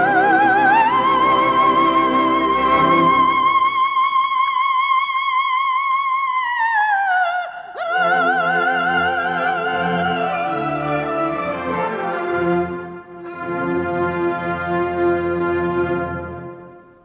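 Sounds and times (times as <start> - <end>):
soprano singing with vibrato: 0.0 - 12.4
orchestra playing: 9.6 - 16.9.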